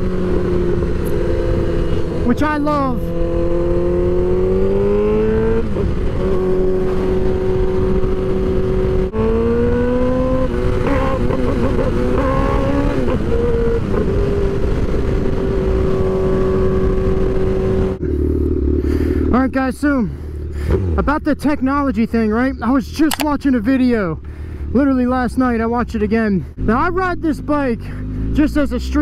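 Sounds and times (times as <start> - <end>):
motorcycle engine revving: 0.0 - 22.5.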